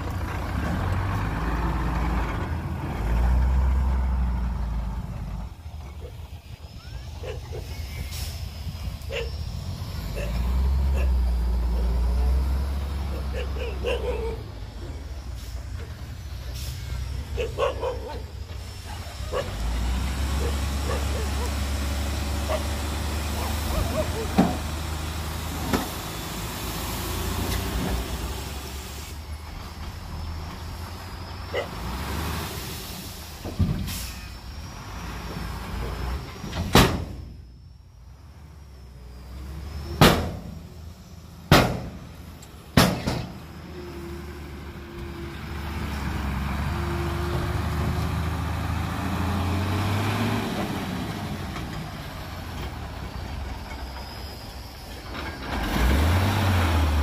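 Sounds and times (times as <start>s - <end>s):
dump truck diesel engine revving: 0.0s - 37.3s, 38.2s - 57.0s
soil load sliding out: 18.4s - 37.4s, 39.3s - 57.0s.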